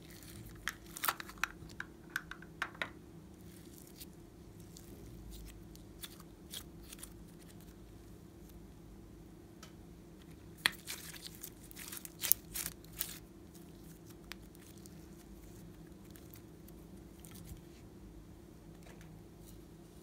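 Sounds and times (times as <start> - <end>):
sticky slime clicks and crackles: 10.6 - 14.9.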